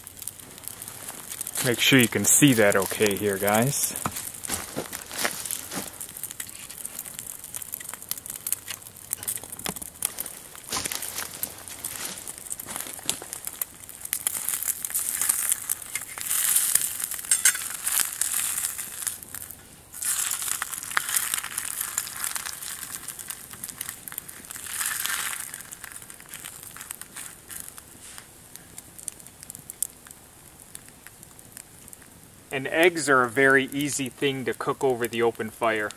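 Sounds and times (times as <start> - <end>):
eggs sizzling in oil: 0.0 - 35.9
wood fire crackling: 0.0 - 35.9.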